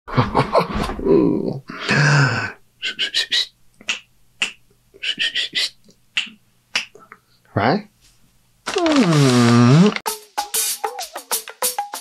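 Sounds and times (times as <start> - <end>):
finger snaps: 3.8 - 4.7, 5.8 - 7.1.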